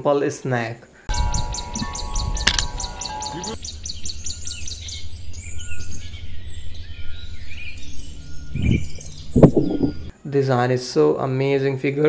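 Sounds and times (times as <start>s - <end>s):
steady low rumble: 1.1s - 10.1s
small birds chirping: 1.1s - 10.2s.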